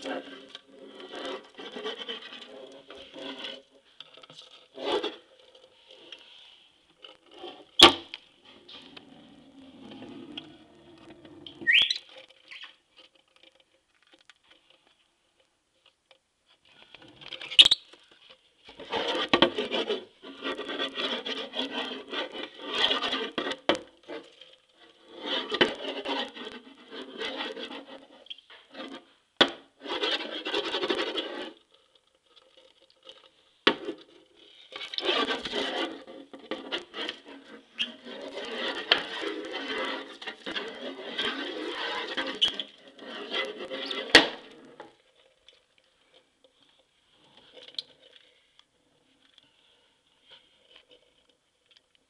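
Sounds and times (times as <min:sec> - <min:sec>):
scratching on wooden floor: 0:00.0 - 0:14.7, 0:18.8 - 0:29.1, 0:29.8 - 0:31.6, 0:33.8 - 0:45.0
short rising chirp: 0:11.6 - 0:12.0.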